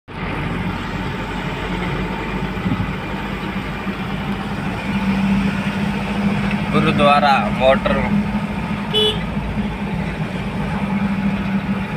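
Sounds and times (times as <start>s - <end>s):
road noise: 0.1s - 11.9s
truck engine drone: 0.1s - 11.9s.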